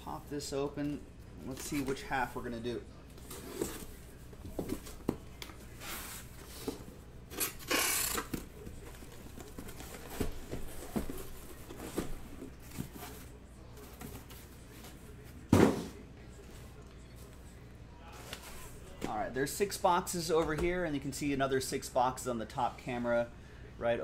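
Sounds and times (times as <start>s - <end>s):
cardboard thump: 15.5s - 15.9s.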